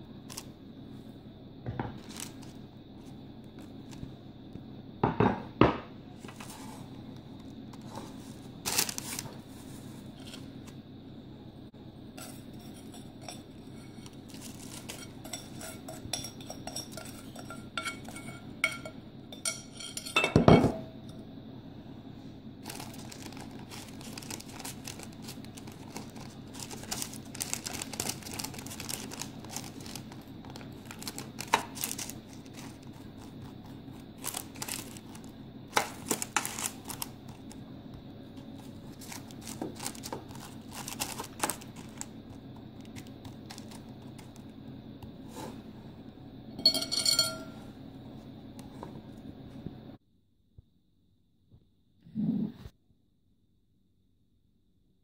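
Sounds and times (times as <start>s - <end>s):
spoon scraping dry noodles: 12.2s - 18.9s
spoon and dishes clinking: 12.2s - 20.8s, 46.6s - 47.6s.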